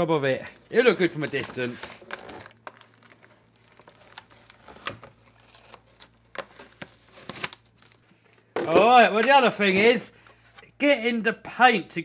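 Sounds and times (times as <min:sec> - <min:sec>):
paper crinkling: 0:00.0 - 0:08.5.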